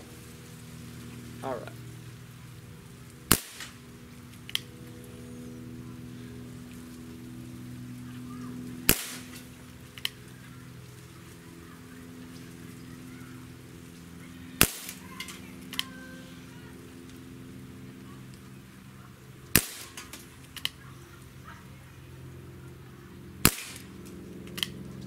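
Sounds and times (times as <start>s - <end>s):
low hum: 0.0s - 25.0s
pellet revolver shot: 3.3s - 3.8s, 8.8s - 9.5s, 14.6s - 15.8s, 19.5s - 20.7s, 23.4s - 23.9s.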